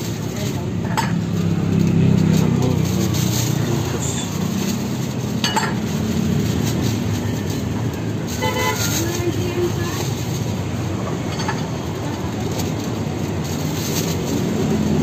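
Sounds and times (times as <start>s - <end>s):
low rumble of engines: 0.0s - 15.0s
plastic bags rustling: 0.0s - 15.0s
dishes clinking: 5.4s - 5.8s, 11.2s - 11.7s.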